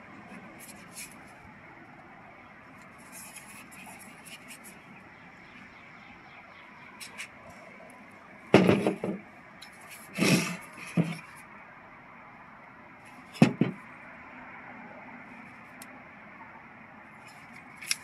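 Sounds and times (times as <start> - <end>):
scraping bump: 8.6 - 9.2, 9.8 - 11.4, 13.4 - 13.8
plastic speaker clicks and rustling: 8.6 - 11.4, 13.4 - 13.8, 17.3 - 18.0.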